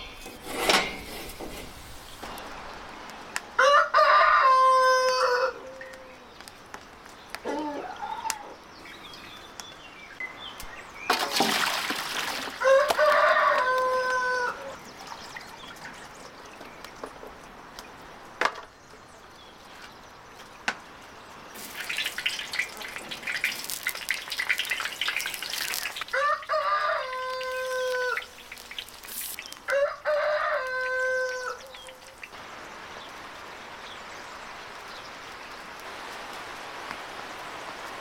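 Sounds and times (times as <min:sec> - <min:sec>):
rooster crowing: 0:03.6 - 0:06.2, 0:12.6 - 0:14.8, 0:26.1 - 0:28.4, 0:29.7 - 0:32.2
vegetables sizzling in hot oil: 0:21.5 - 0:29.9.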